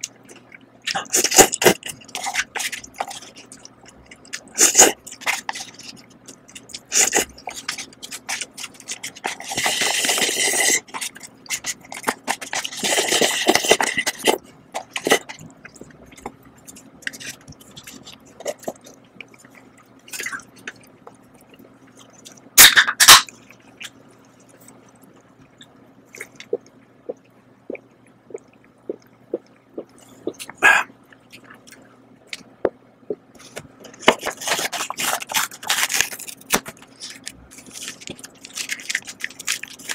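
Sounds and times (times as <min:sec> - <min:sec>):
seasoning sachet tearing: 0:34.2 - 0:39.9.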